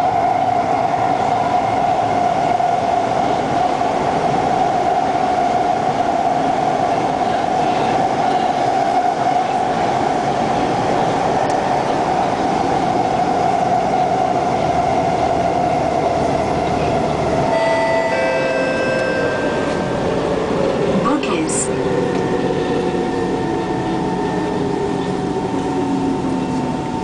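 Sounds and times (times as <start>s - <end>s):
steady train tone: 0.0s - 27.0s
train rail and running noise: 0.0s - 27.0s
higher steady tones: 17.4s - 25.0s.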